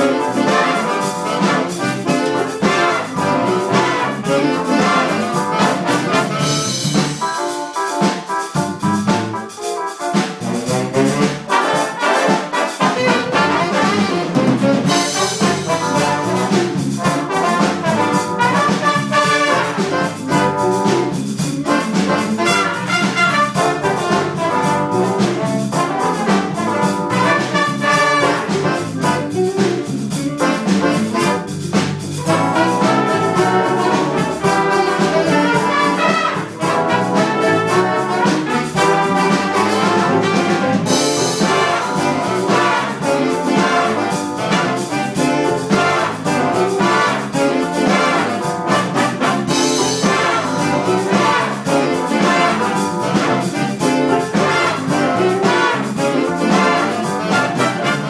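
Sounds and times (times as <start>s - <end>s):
jazz big band playing: 0.0s - 58.0s.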